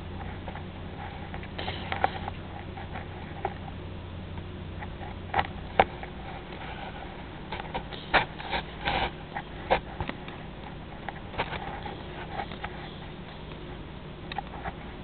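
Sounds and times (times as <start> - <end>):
steady low hum: 0.0 - 15.0
cat sniffing: 1.1 - 2.8.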